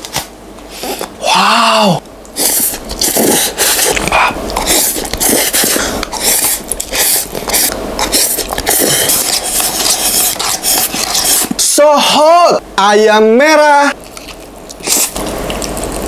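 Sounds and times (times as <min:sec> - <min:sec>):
slurping and chewing noodles: 0:00.0 - 0:01.3, 0:02.3 - 0:11.8, 0:14.0 - 0:16.0.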